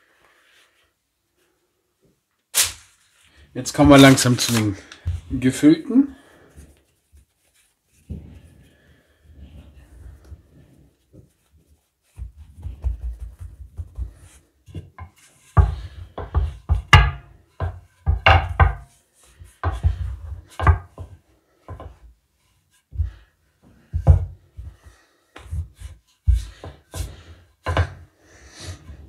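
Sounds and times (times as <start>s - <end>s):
rolling pin thudding on worktop: 12.1s - 22.1s, 25.4s - 28.1s.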